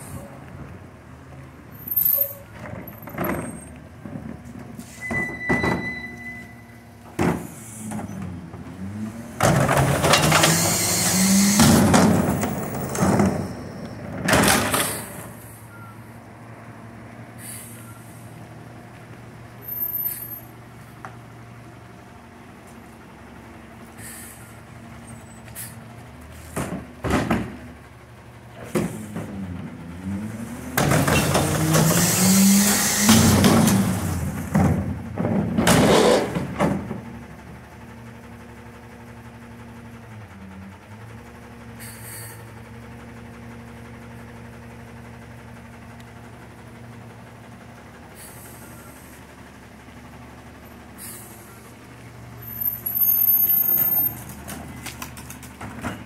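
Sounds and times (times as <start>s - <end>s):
trash cart knocks and bangs: 9.4s - 10.5s, 11.6s - 15.1s, 26.6s - 27.6s, 30.8s - 32.0s, 33.1s - 37.1s
garbage truck idling: 11.7s - 30.2s, 36.2s - 56.0s
garbage packer cycling with hiss: 17.3s - 18.4s, 23.8s - 24.8s, 25.4s - 26.9s, 30.8s - 34.6s, 41.6s - 42.8s, 47.4s - 49.8s, 50.6s - 56.0s.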